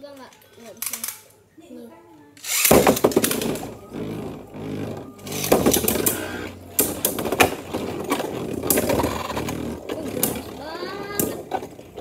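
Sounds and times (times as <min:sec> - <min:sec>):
spinning tops whirring: 0:02.4 - 0:12.0.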